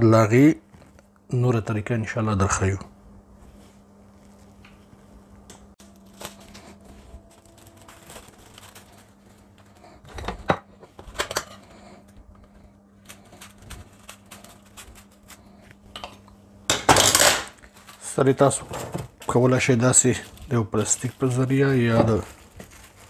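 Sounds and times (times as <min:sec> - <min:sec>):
faint steady hum: 0:00.0 - 0:23.0
cling film crinkling: 0:05.8 - 0:10.0, 0:13.0 - 0:15.6, 0:19.3 - 0:23.0.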